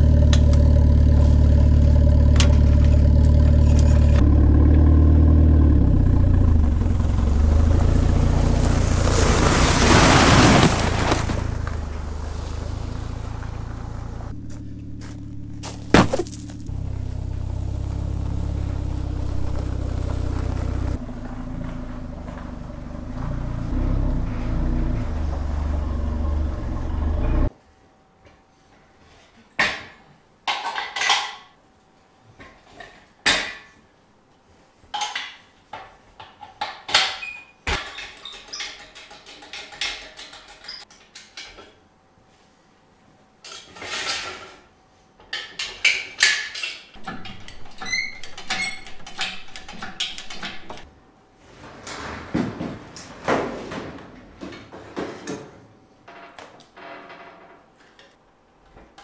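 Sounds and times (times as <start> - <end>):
low drone: 0.0 - 9.2, 11.4 - 27.5
metal clanks and knocks: 0.2 - 5.2, 36.2 - 41.8, 45.2 - 50.8
kick knocking cardboard box: 15.6 - 16.6.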